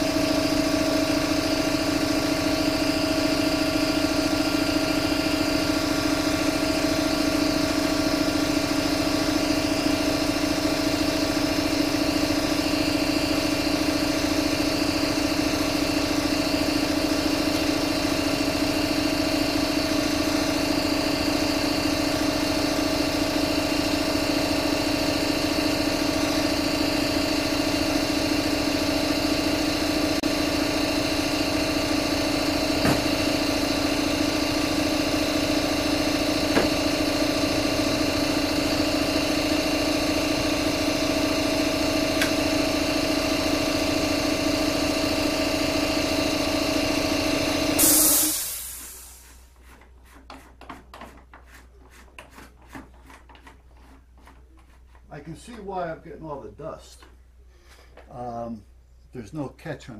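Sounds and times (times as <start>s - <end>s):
machine motor humming: 0.0s - 49.3s.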